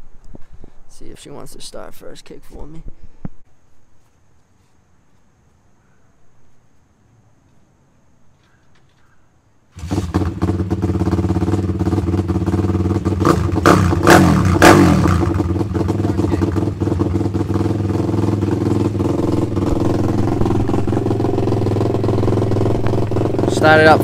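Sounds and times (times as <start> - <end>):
motorbike engine revving and idling: 9.8 - 24.0.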